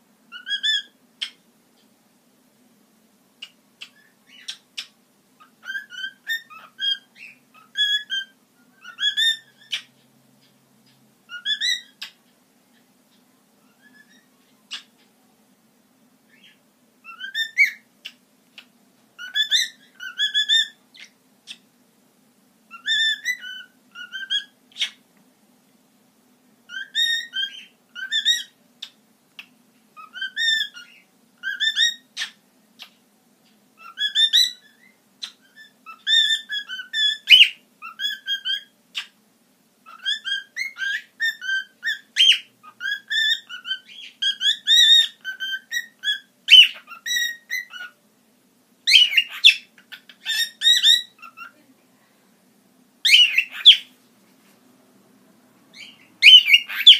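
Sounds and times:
cockatiel whistling: 0.3s - 1.4s, 3.4s - 4.9s, 5.5s - 9.9s, 11.3s - 12.2s, 13.6s - 14.9s, 16.3s - 21.6s, 22.7s - 25.0s, 26.7s - 29.0s, 30.0s - 32.9s, 33.8s - 39.1s, 39.8s - 48.0s, 48.8s - 51.6s, 53.0s - 53.9s, 55.7s - 56.9s.

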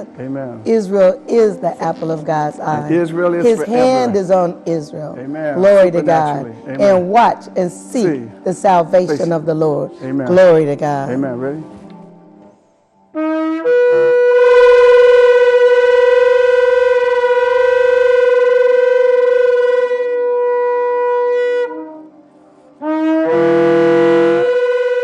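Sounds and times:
horn blasts: 13.1s - 25.0s.

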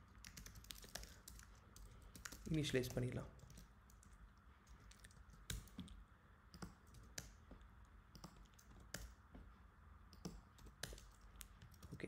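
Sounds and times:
computer keyboard keystrokes: 0.1s - 6.0s, 6.6s - 7.4s, 8.1s - 9.2s, 10.1s - 12.0s.

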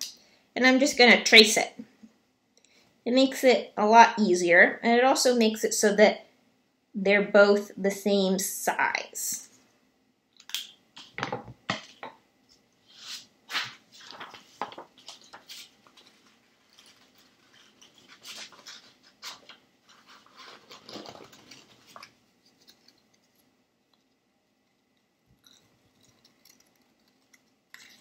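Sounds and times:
paper rustling: 13.0s - 23.4s.

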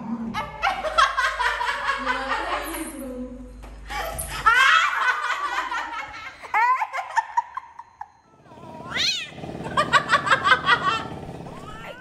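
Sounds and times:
person laughing: 9.6s - 11.8s.

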